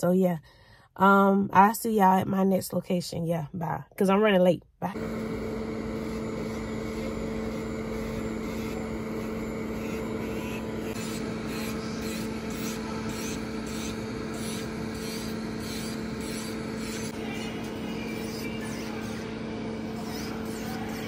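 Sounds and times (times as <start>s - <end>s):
electric nail drill humming: 4.9s - 21.0s
drill bit grinding on nail: 5.0s - 21.0s.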